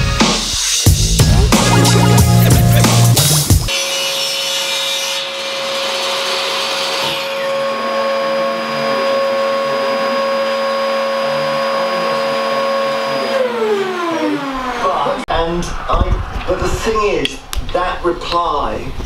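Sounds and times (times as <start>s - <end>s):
saw cutting hardboard: 2.5s - 14.8s
table saw whining: 3.7s - 15.3s.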